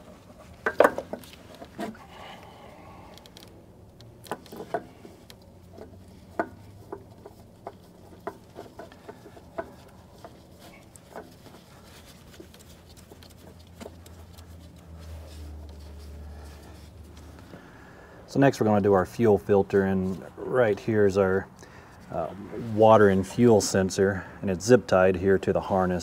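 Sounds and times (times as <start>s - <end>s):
hands clicking and tapping on engine: 0.0s - 17.8s.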